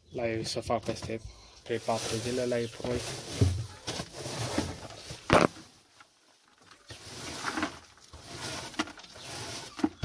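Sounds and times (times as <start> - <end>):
straw rustling: 1.7 - 10.0
hay scraping on wooden floor: 1.8 - 5.8, 6.9 - 10.0.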